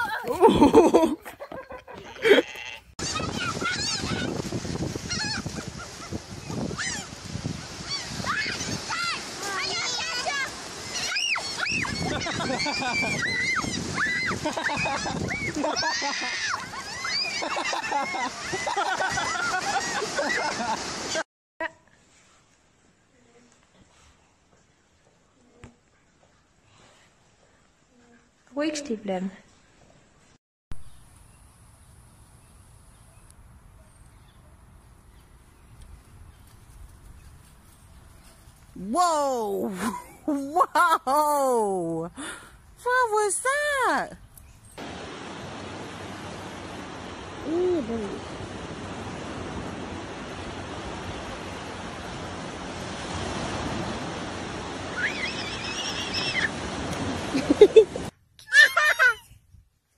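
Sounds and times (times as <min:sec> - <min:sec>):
low rumbling wind on microphone: 0:03.0 - 0:08.9, 0:11.6 - 0:15.7
waves washing up beach: 0:03.0 - 0:21.2, 0:44.8 - 0:58.1
high squeal: 0:54.9 - 0:56.5.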